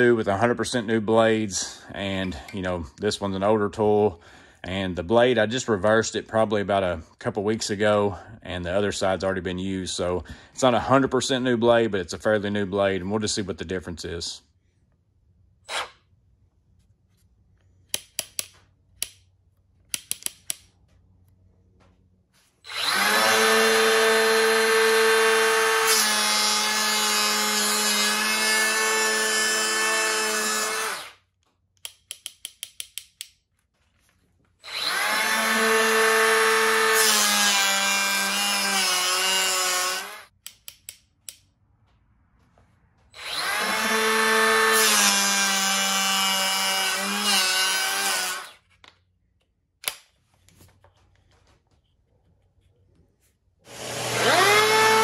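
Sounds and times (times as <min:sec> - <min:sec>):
hand planer motor whine: 0:22.7 - 0:31.2, 0:34.6 - 0:40.2, 0:43.1 - 0:48.6, 0:53.7 - 0:55.0.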